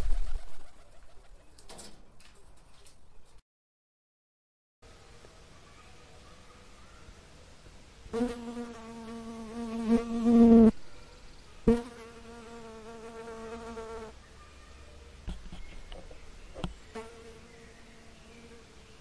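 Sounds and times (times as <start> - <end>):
fly buzzing: 8.1 - 10.8, 11.7 - 14.1, 16.9 - 18.7.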